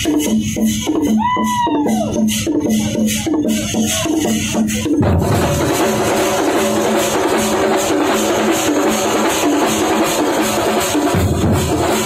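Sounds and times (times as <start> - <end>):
drum ensemble playing: 0.0 - 12.0.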